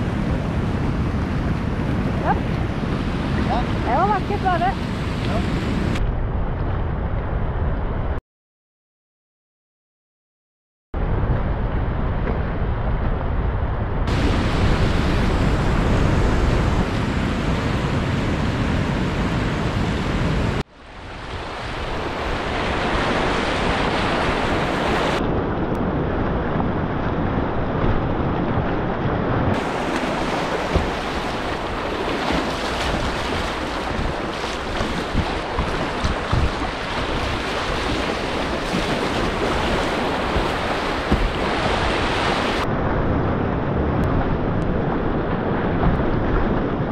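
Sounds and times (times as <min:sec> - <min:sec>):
river rapids rushing: 0:29.6 - 0:42.6.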